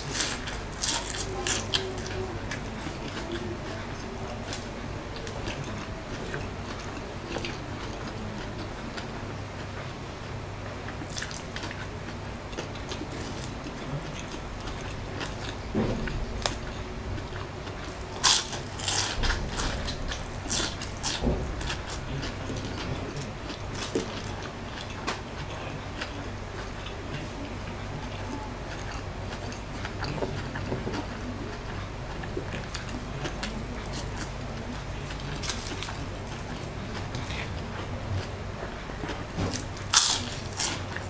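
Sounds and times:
crispy food biting and chewing: 0.0s - 3.8s, 17.6s - 26.7s, 31.8s - 38.3s, 39.1s - 41.0s.

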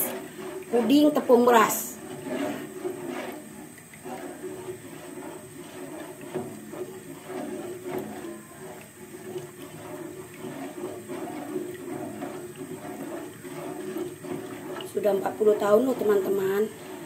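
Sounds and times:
batter stirred in pot: 0.0s - 17.0s
steady low hum: 0.0s - 17.0s.

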